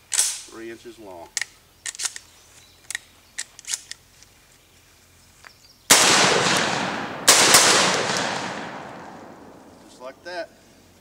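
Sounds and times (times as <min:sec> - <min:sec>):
shells being loaded into shotgun: 0:01.3 - 0:04.0
loud echoing shotgun shots: 0:05.9 - 0:09.9.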